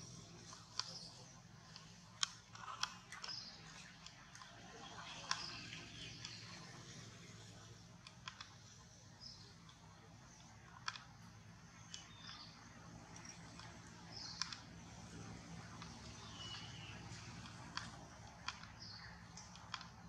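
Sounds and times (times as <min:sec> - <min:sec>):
low steady hum: 0:00.0 - 0:20.0
soft sharp clicks: 0:00.0 - 0:20.0.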